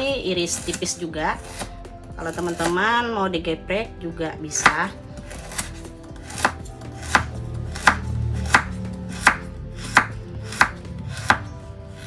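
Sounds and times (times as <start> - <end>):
knife chopping on wooden board: 1.4 - 2.8, 4.5 - 12.0.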